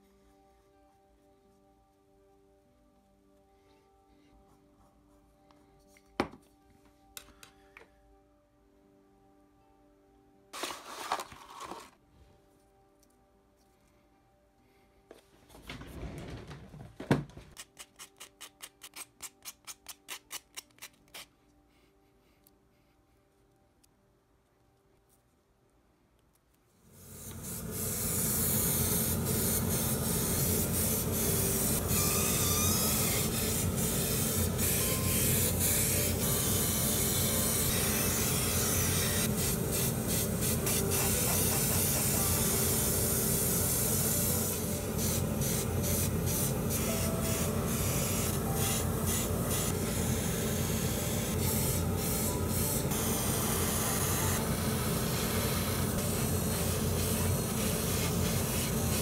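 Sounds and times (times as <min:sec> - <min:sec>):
airbrush hissing: 0:27.0 - 0:59.0.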